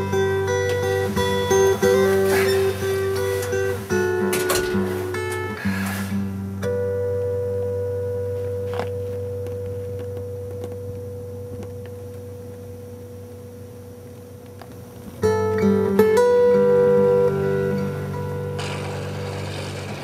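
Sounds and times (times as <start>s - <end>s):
acoustic guitar: 0.0s - 20.0s.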